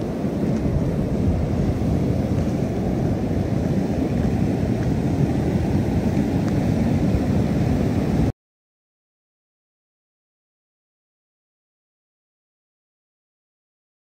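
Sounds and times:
floodwater rushing: 0:00.0 - 0:08.3.

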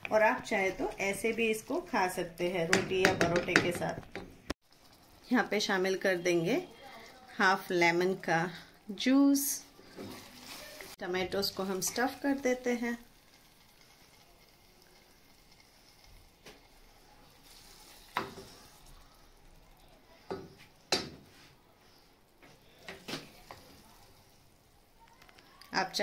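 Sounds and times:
faint steady background noise: 0:00.0 - 0:26.0
spoon knocking on cookware: 0:02.7 - 0:04.3.

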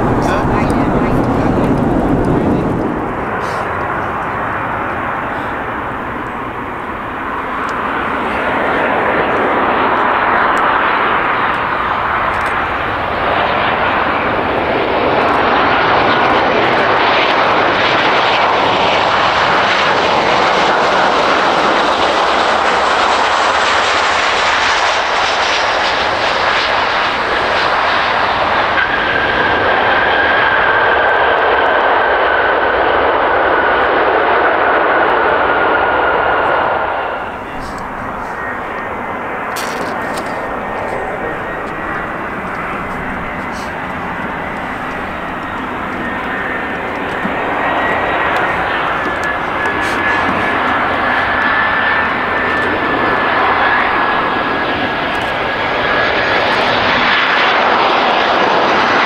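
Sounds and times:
jet engines running: 0:00.0 - 0:59.0
whining tone: 0:35.0 - 0:57.0.

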